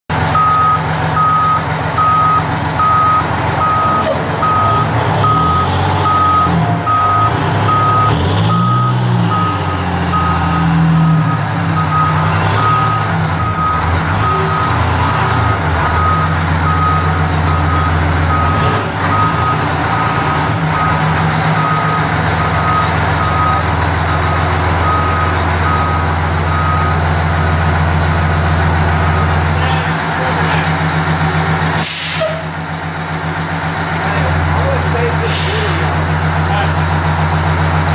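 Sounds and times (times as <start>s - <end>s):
truck engine running: 0.1s - 37.9s
backup alarm beeping: 0.4s - 14.8s, 15.4s - 27.0s.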